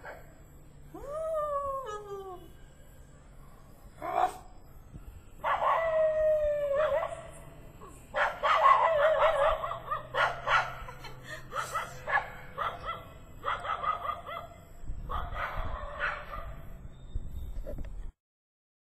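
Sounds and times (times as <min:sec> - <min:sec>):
dog howling: 0:05.4 - 0:07.3.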